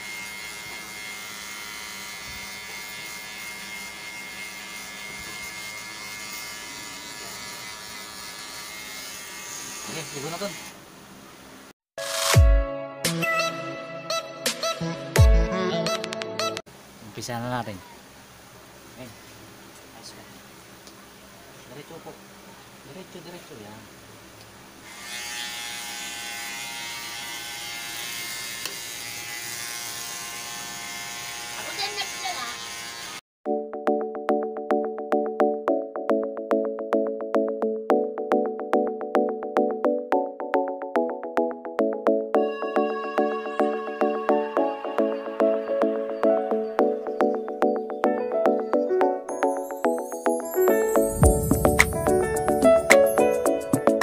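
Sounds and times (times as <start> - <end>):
electric hair clippers buzzing: 0.0 - 10.8, 24.8 - 33.2.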